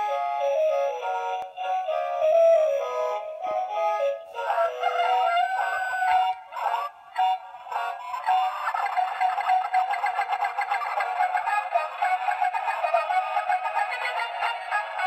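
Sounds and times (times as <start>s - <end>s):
synthetic voice singing over music: 9.9s - 15.0s.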